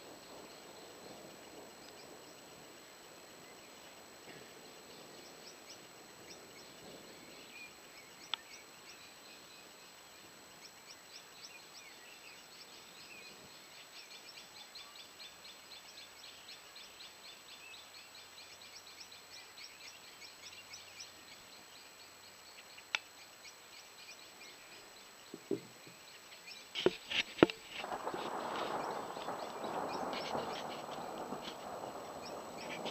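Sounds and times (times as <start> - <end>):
high insect chirps: 0.0 - 32.9
low hiss: 0.0 - 32.9
sharp clicks and knocks: 26.7 - 27.9.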